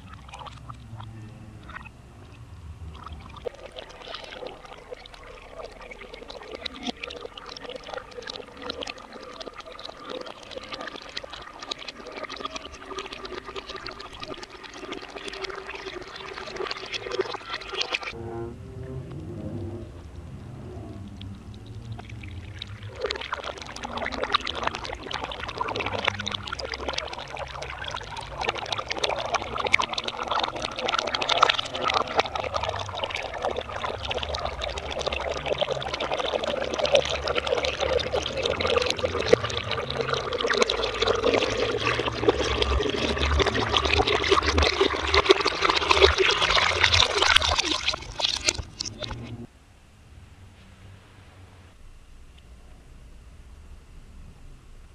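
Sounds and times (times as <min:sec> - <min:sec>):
water pouring into metal pot: 0:03.0 - 0:18.2, 0:21.9 - 0:49.2.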